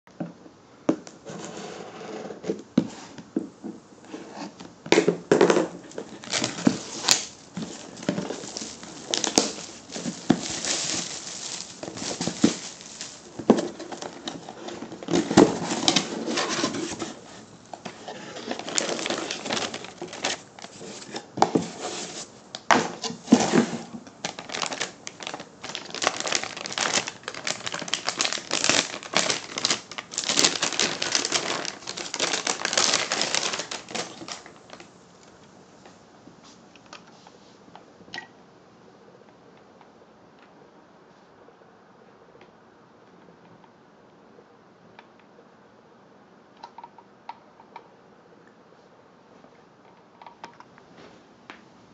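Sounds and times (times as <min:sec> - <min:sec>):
cardboard box being opened: 0:05.5 - 0:34.8.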